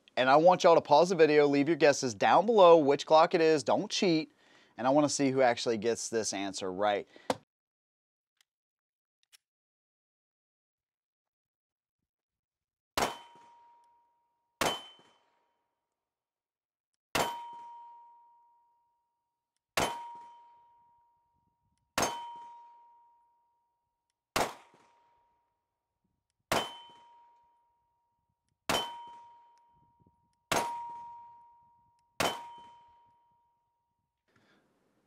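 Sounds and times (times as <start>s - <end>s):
pistol shots: 13.0s - 13.5s, 14.6s - 15.2s, 19.8s - 20.3s, 24.4s - 25.0s, 26.5s - 27.2s, 32.2s - 32.9s.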